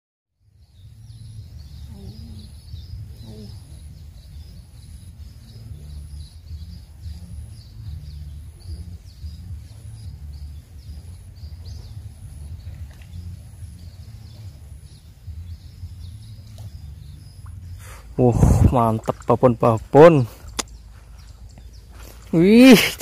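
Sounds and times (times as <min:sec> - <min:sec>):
birds chirping: 0:00.4 - 0:23.0
wind buffeting microphone: 0:00.8 - 0:23.0.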